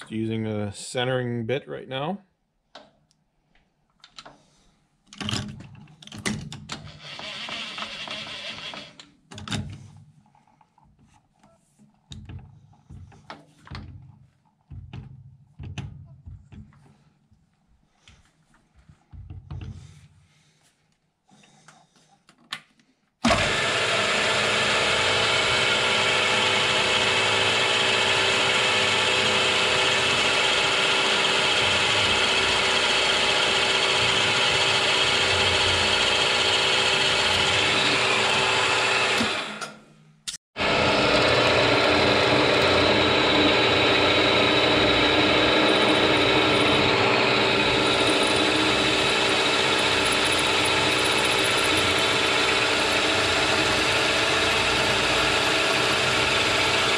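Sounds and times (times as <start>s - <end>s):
milling machine drilling steel: 7.0s - 8.9s, 23.3s - 39.7s, 40.6s - 56.9s.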